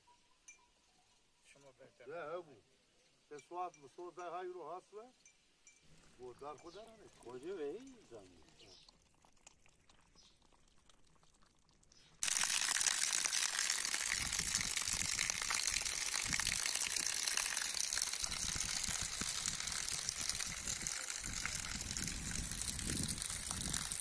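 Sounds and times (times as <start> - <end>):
water rushing up from ground: 8.9 - 24.0.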